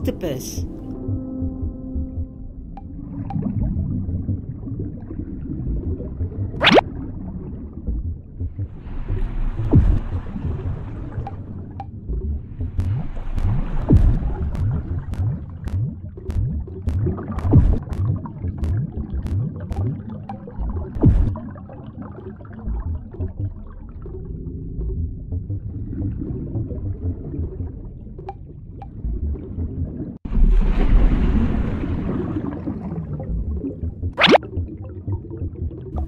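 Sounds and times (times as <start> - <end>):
rising bubble sounds: 1.4 - 28.3, 28.9 - 36.0
cartoon underwater bubbling: 3.3 - 8.2, 32.0 - 36.0.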